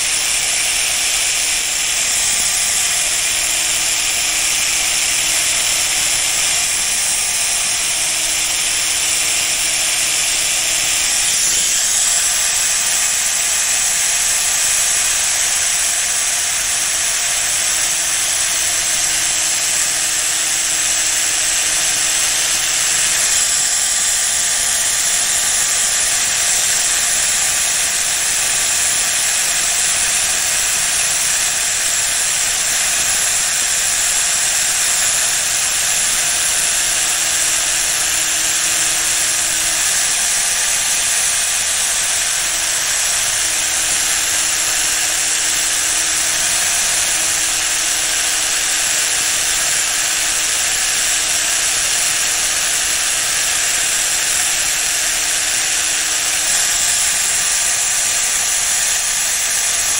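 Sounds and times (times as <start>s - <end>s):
power tool grinding steel: 0.0s - 59.9s.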